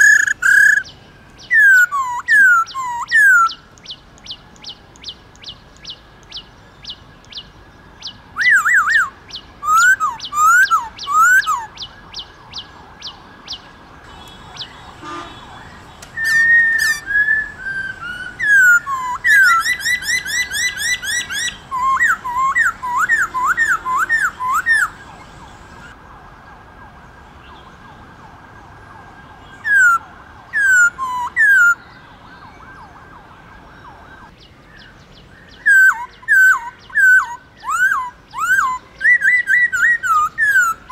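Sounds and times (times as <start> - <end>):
high ticking bird notes: 0.0 - 12.7, 13.5 - 25.9
bird whistled song: 0.0 - 25.9, 30.6 - 32.6, 34.8 - 40.9.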